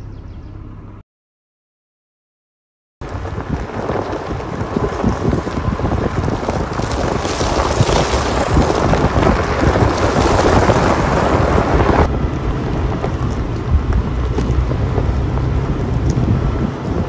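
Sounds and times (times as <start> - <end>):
tyres rumbling on rough road: 3.0 - 17.0
wind noise on microphone: 3.0 - 17.0.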